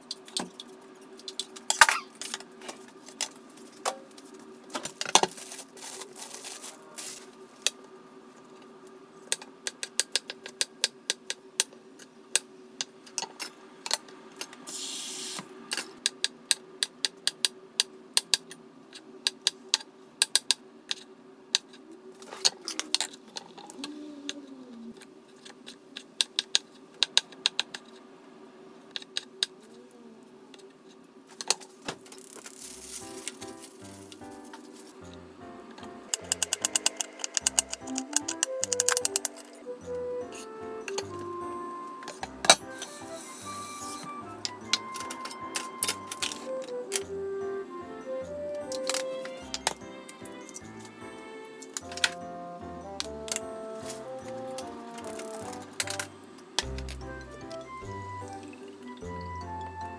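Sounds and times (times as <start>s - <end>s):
brief hiss: 14.7s - 15.5s, 42.7s - 44.2s.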